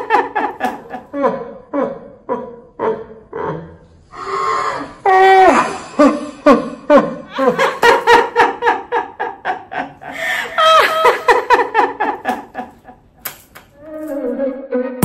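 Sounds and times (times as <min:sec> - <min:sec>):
hearty laughter: 0:05.5 - 0:13.0.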